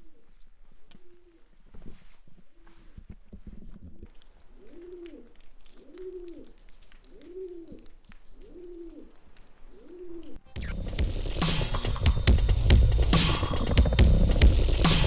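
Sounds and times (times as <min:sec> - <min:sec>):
pigeon cooing: 0:00.0 - 0:01.5, 0:04.6 - 0:10.8.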